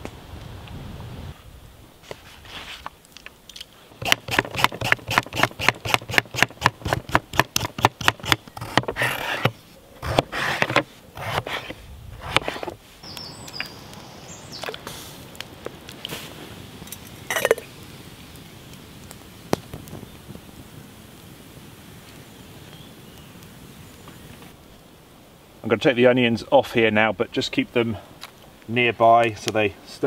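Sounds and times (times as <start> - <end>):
peeler scraping potato: 4.0 - 12.7.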